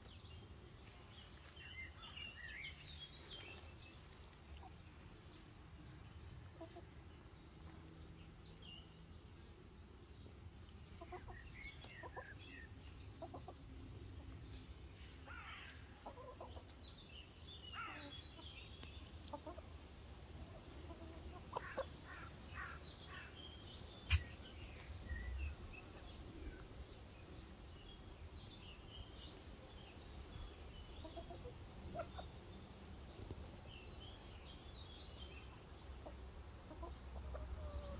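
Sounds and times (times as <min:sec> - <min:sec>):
hens clucking: 0:10.6 - 0:13.9, 0:16.0 - 0:16.8, 0:17.9 - 0:19.8, 0:20.4 - 0:22.3, 0:24.0 - 0:24.8, 0:31.0 - 0:32.4, 0:35.9 - 0:37.9.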